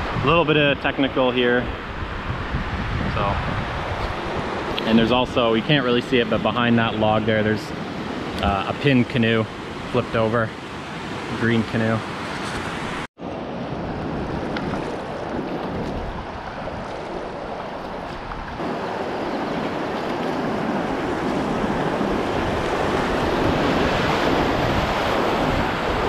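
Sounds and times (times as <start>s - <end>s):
wind buffeting microphone: 0.0s - 10.2s, 12.0s - 26.0s
whitewater rushing: 14.8s - 26.0s.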